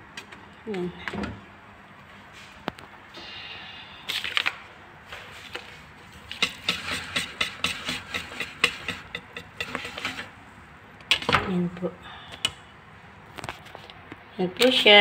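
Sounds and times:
wire whisk beating batter in bowl: 6.2s - 10.4s.

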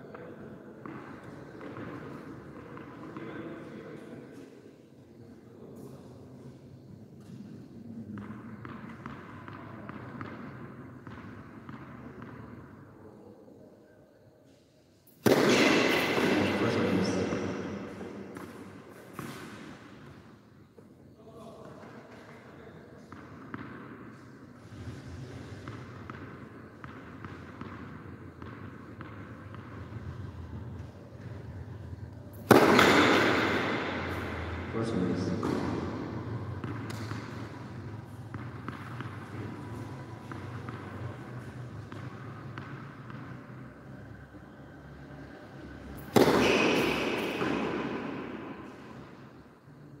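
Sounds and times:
tennis ball bouncing on court: 0.1s - 3.3s, 8.1s - 12.8s, 15.1s - 20.2s, 23.0s - 24.4s, 25.5s - 31.5s, 32.3s - 43.9s, 46.0s - 49.3s.

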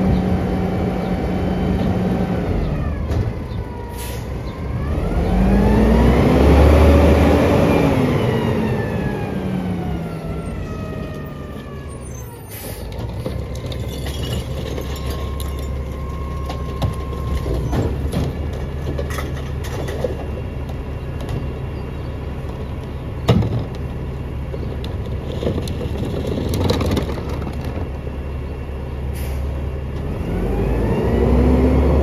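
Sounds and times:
garbage truck engine whine: 0.0s - 32.0s
truck idling drone: 0.0s - 32.0s.

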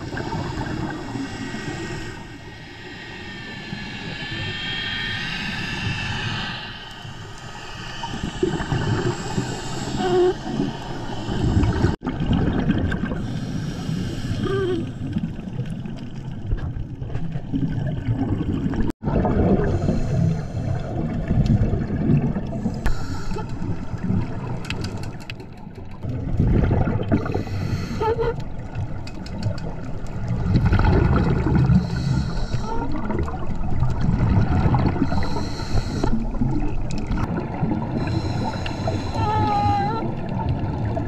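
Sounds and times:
regulator inhalation hiss: 0.6s - 12.0s, 13.2s - 14.5s, 22.8s - 23.5s, 31.8s - 32.7s, 35.1s - 36.2s, 38.0s - 39.5s
bubbles gurgling underwater: 11.4s - 13.4s, 15.0s - 22.8s, 23.6s - 27.7s, 28.6s - 41.0s.

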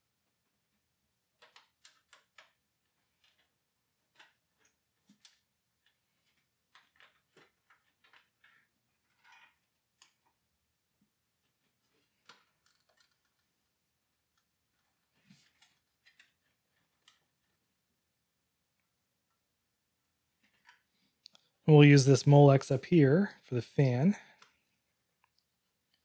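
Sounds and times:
faint cable clicks and taps: 11.9s - 13.5s, 14.3s - 17.6s.

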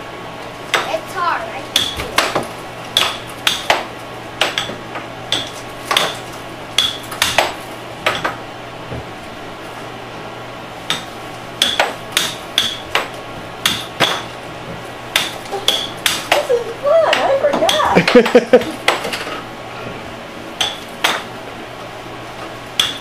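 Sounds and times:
air blower hum: 0.0s - 23.0s
air hockey puck clacking: 1.8s - 6.2s, 10.9s - 14.3s, 15.2s - 19.4s.

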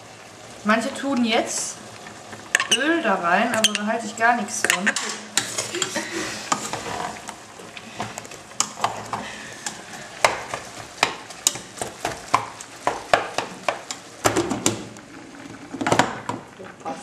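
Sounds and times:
meat sizzling in a pot: 0.0s - 17.0s
spoon scraping a pot: 4.6s - 7.2s.

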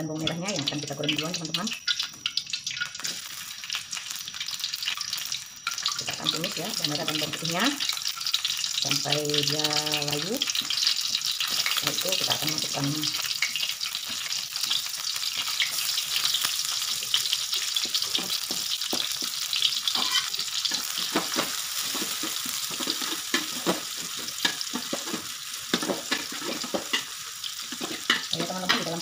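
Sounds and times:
shallots sizzling in hot oil: 0.0s - 29.0s
metal spatula scraping a wok: 17.6s - 29.0s.

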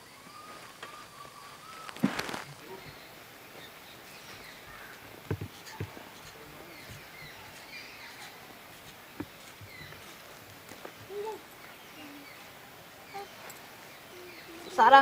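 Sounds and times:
faint bird chirps: 0.0s - 15.0s.

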